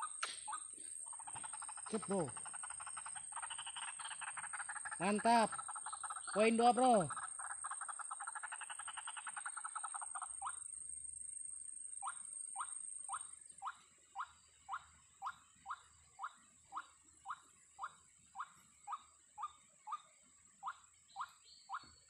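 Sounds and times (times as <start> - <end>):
waterhen croaking calls: 0.0 - 10.6.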